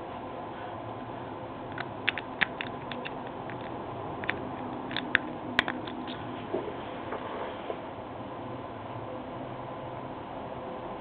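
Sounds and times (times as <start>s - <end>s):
lock pick clicking in lock: 1.8s - 6.2s.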